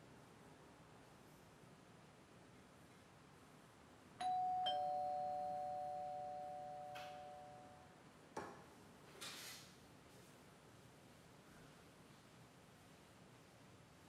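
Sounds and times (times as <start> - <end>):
two-tone doorbell chime: 4.2 - 7.9.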